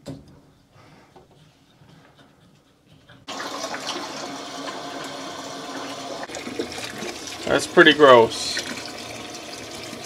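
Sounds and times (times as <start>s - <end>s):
water gushing through hose: 3.3s - 10.0s.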